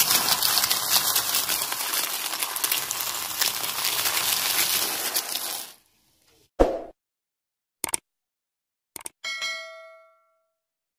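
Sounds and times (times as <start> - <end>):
crisp food crackling under tyre: 0.0 - 5.9.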